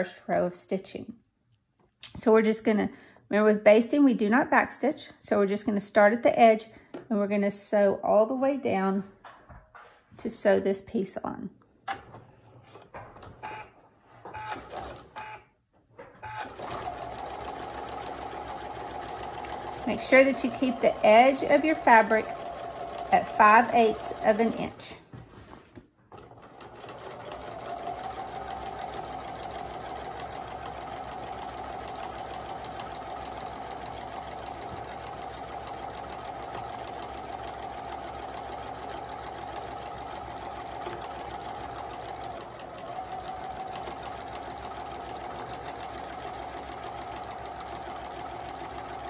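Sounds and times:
electric sewing machine running: 16.3s - 24.8s, 26.2s - 49.0s.

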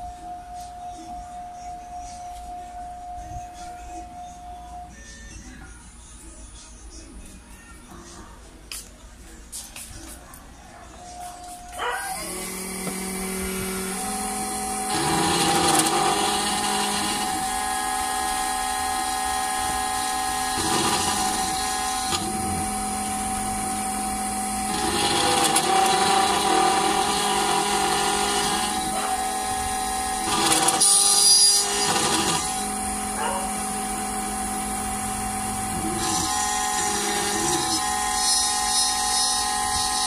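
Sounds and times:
key cutting machine whine: 11.8s - 40.0s
cutter milling metal: 12.0s - 40.0s.

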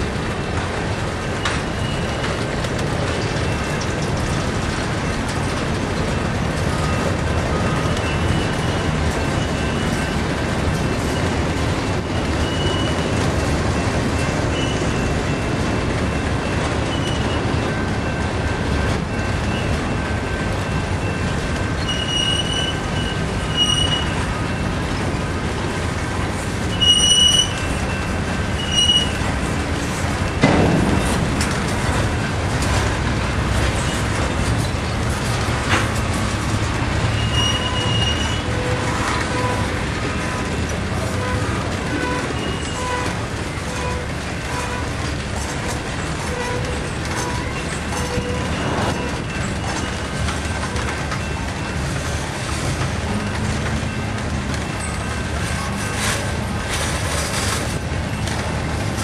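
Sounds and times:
train wheels rumbling on rail: 0.0s - 59.0s
high-pitched wheel squeals: 21.8s - 24.3s, 26.7s - 29.3s, 37.1s - 40.6s.

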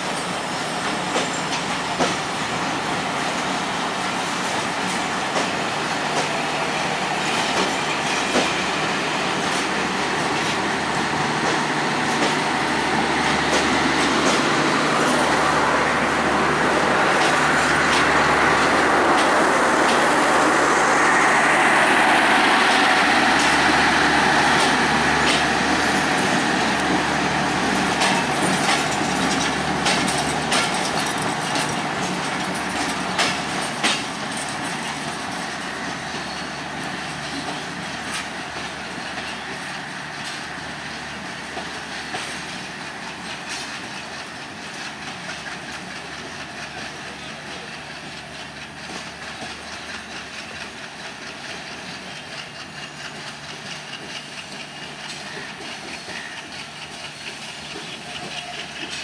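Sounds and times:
train coaches rolling on track: 0.0s - 59.0s
wheels clicking over rail joints: 24.6s - 36.4s, 37.1s - 59.0s.

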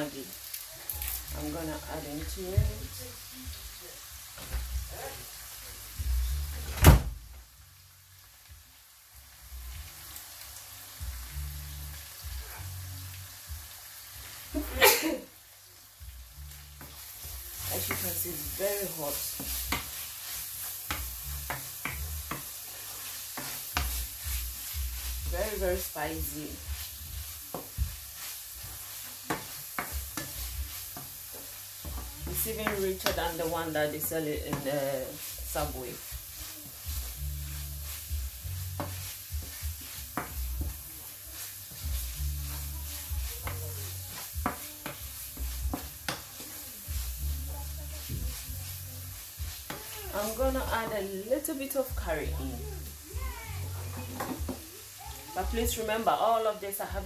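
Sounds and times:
meat sizzling in a frying pan: 0.0s - 57.0s
spatula scraping a pan: 16.5s - 53.0s.

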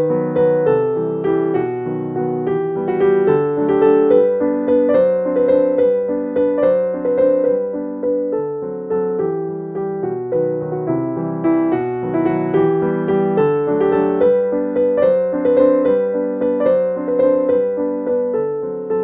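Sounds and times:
gentle piano music: 0.0s - 19.0s.

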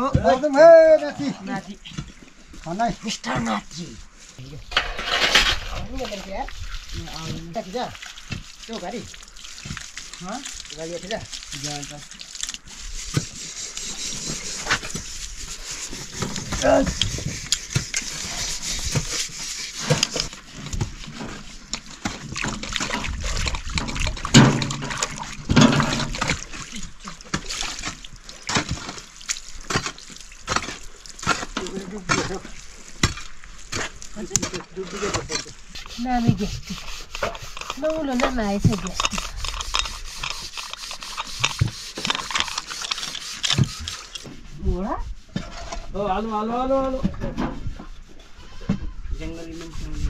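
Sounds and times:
water splashing and sloshing: 0.0s - 50.0s
scraping: 3.2s - 8.4s, 12.6s - 44.5s.

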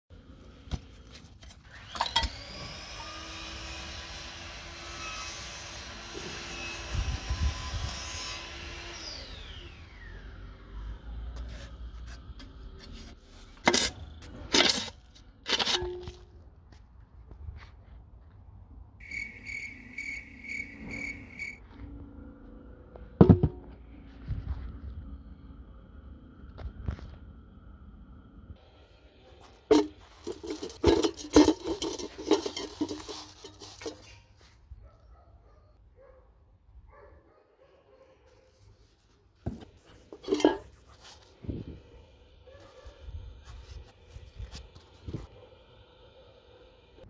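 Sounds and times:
insect chirping: 19.0s - 21.6s
metal knocks and clanks: 23.2s - 23.8s, 29.7s - 34.1s.

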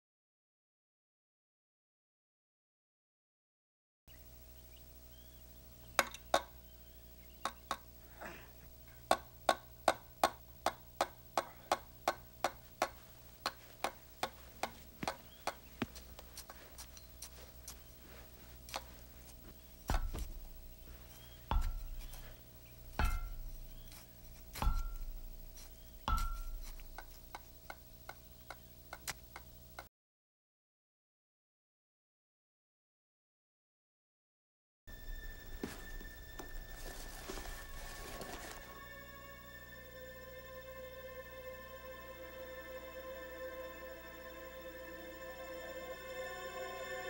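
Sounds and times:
faint steady hum: 4.1s - 29.9s, 34.9s - 47.0s
regular ticking: 8.8s - 29.9s.

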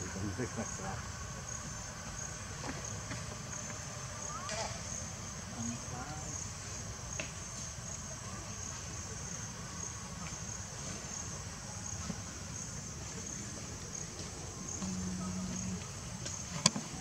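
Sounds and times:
crickets chirping: 0.0s - 17.0s
low background rumble: 8.0s - 17.0s
brief low hum: 14.5s - 16.6s.

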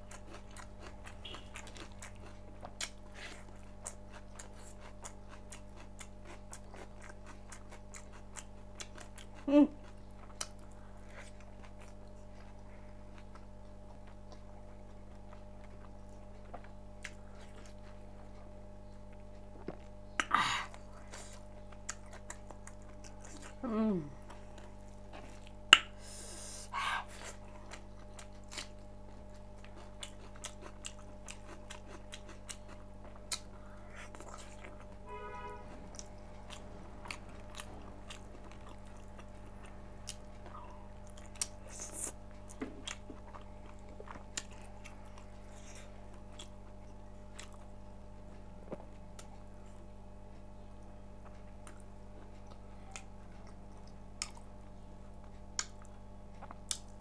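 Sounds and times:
chewing and biting meat: 0.0s - 18.4s, 27.1s - 35.0s, 35.8s - 49.4s
steady low hum: 0.0s - 57.0s.

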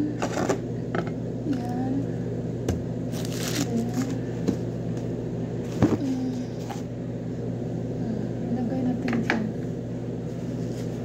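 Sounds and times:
steady low hum: 0.0s - 11.0s
paper packaging rustling: 3.1s - 4.2s.

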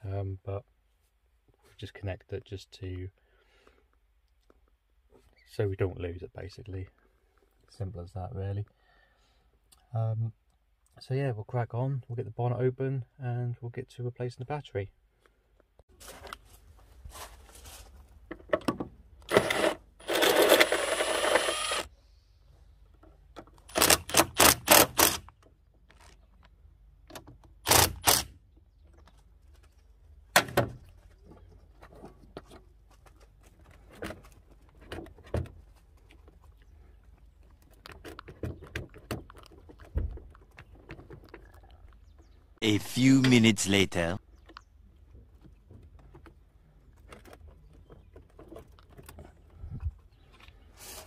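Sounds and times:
scraping rustle: 15.9s - 18.2s
handling knocks and clicks: 28.5s - 42.3s.

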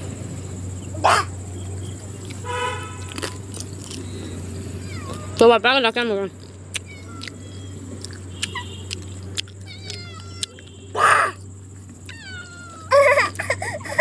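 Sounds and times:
cat mewing: 4.7s - 5.5s, 6.8s - 11.4s, 12.0s - 13.4s.

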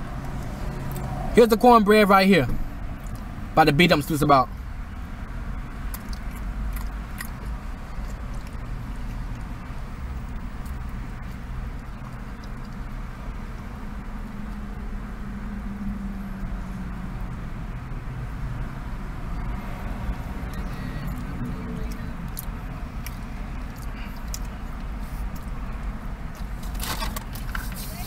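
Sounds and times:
quiet chewing: 5.9s - 9.5s, 10.2s - 12.9s, 21.9s - 25.6s.

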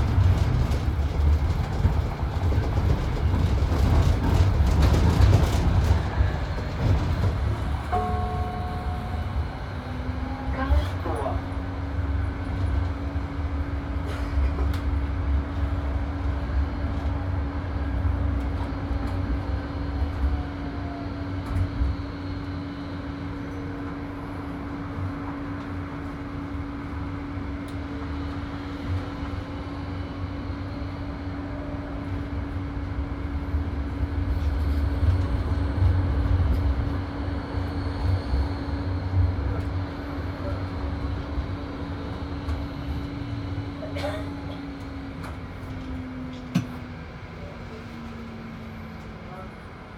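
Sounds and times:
oncoming tram passing: 0.0s - 49.9s
tram wheels rumbling on track: 0.0s - 49.9s
tram whine: 0.0s - 49.9s.

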